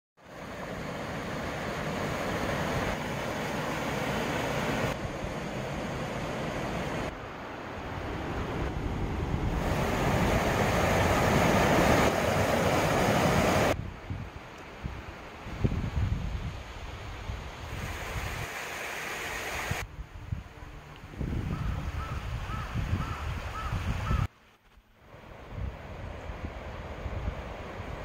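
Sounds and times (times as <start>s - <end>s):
stream rushing over rocks: 0.2s - 8.2s, 9.6s - 13.8s, 17.6s - 19.9s.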